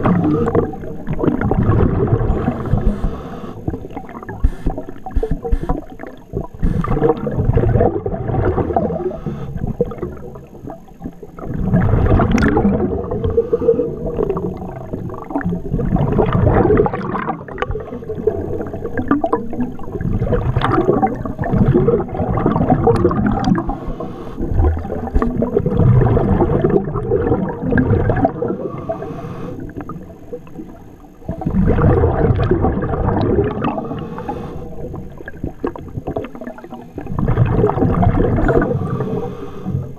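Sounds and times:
watery rush: 0.0s - 9.4s
exhaled bubbles gurgling underwater: 0.0s - 39.9s.

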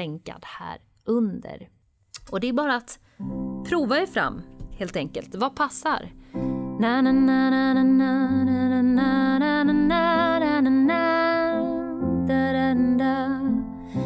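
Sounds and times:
sustained piano chords: 3.2s - 5.2s, 6.0s - 14.0s
woman singing wordless melody: 3.8s - 14.0s.

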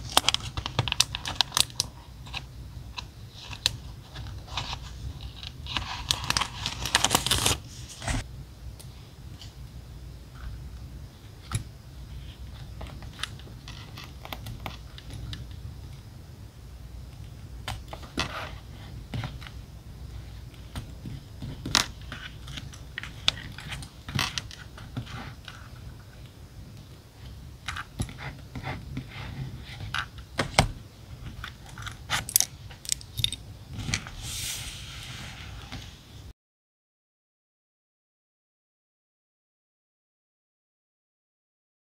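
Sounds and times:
low steady hum: 0.0s - 35.5s
paper rustle: 3.3s - 8.2s.

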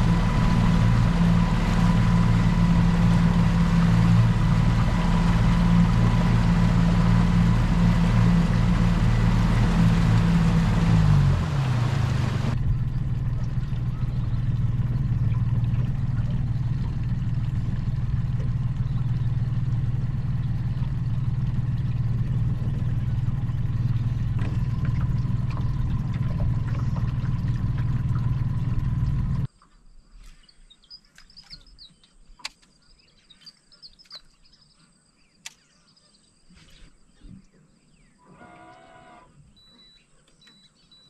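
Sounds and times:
outboard motor droning: 0.0s - 29.5s, 36.7s - 41.0s
birds chirping: 11.8s - 29.5s, 30.2s - 41.0s
sharp clicks: 35.4s - 35.7s.

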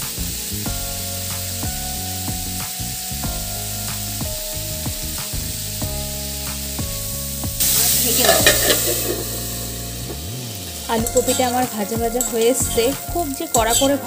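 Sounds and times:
soft background music: 0.0s - 14.0s
vegetables sizzling in oil: 0.0s - 14.0s
spatula stirring: 7.8s - 10.2s, 10.9s - 14.0s.

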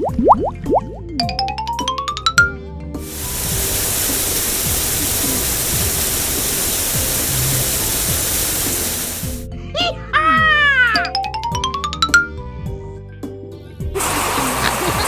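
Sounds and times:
light background music: 0.0s - 15.0s
shower spray hissing: 3.0s - 9.4s, 14.0s - 15.0s.

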